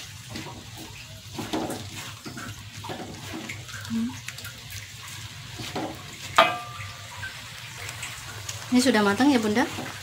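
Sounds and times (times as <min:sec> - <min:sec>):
spatula scraping wok: 0:00.0 - 0:03.8, 0:05.1 - 0:07.5
cabbage and egg sizzling in wok: 0:00.0 - 0:10.0.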